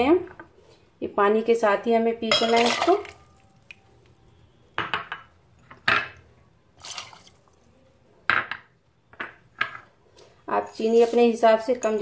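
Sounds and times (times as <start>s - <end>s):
glass bowls clinking on metal jar: 2.3s - 3.6s, 10.6s - 12.0s
liquid pouring: 6.8s - 7.7s.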